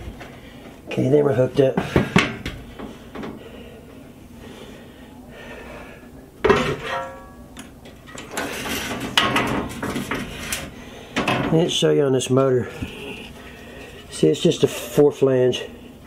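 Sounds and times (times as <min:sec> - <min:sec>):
metal knocks and clattering: 0:08.1 - 0:10.4.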